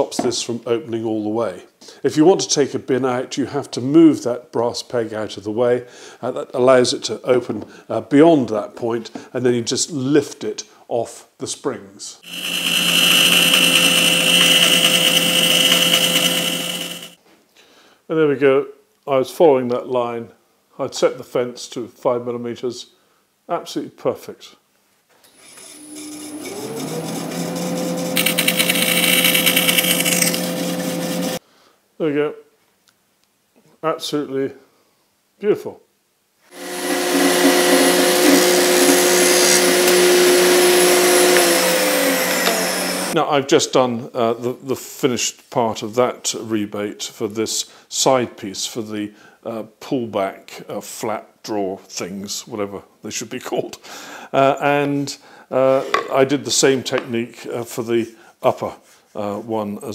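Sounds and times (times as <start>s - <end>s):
bandsaw cutting plywood: 12.2s - 17.2s, 25.3s - 31.4s, 36.5s - 43.2s
dust extractor running: 12.3s - 17.2s, 26.0s - 31.4s, 36.5s - 43.2s.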